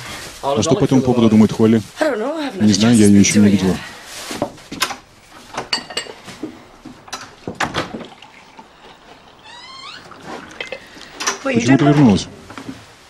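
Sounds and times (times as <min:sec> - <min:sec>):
china cups and spoon clinking: 0:05.7 - 0:06.4, 0:10.5 - 0:11.0
tea pouring into cup: 0:07.1 - 0:11.4.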